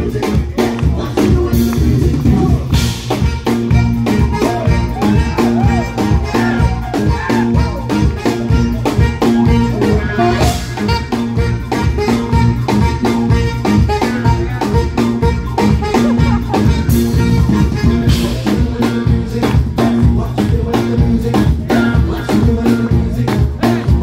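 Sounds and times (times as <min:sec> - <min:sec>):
bass guitar: 0:00.0 - 0:24.0
drum kit beat: 0:00.0 - 0:24.0
keyboards: 0:00.0 - 0:24.0
alto saxophone melody: 0:00.9 - 0:19.4.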